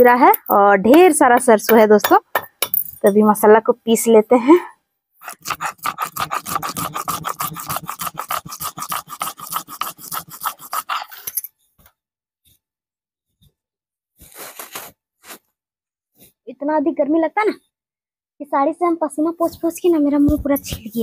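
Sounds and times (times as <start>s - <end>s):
stone roller grinding on slab: 5.2s - 11.4s.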